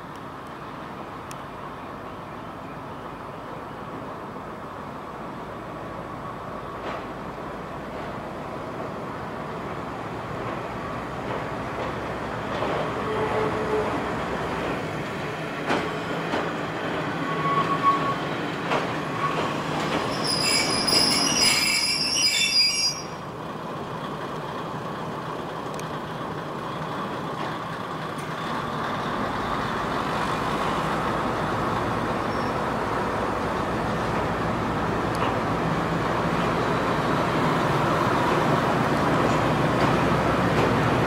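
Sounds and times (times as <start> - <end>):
diesel train running slowly: 0.0 - 41.0
high-pitched wheel squeal: 17.2 - 18.3, 20.1 - 23.2, 32.2 - 32.6.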